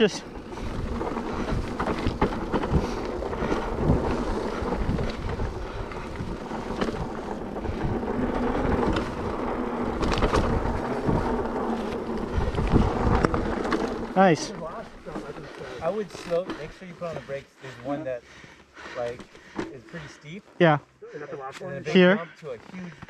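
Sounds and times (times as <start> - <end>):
wind buffeting microphone: 0.0 - 14.2
tyres rumbling on dirt: 0.0 - 17.9
bike clicks and knocks: 0.6 - 14.2.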